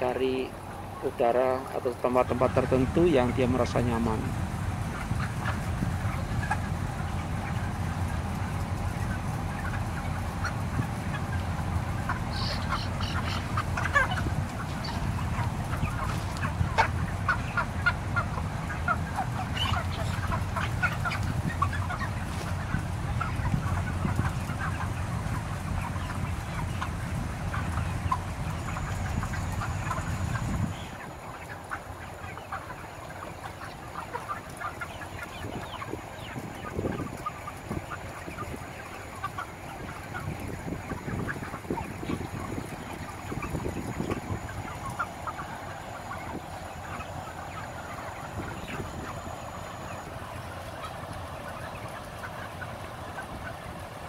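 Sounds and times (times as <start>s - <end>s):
steady low rumble: 0.0s - 32.1s
chickens clucking: 0.0s - 54.0s.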